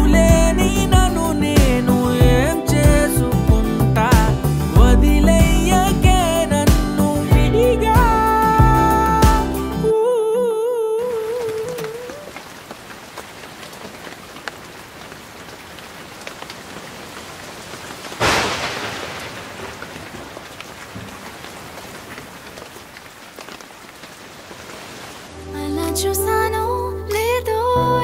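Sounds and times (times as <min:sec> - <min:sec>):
rain hissing: 0:00.0 - 0:09.9, 0:11.0 - 0:26.0
raindrops ticking: 0:11.0 - 0:25.3
thunderclap with rumble: 0:16.6 - 0:22.7.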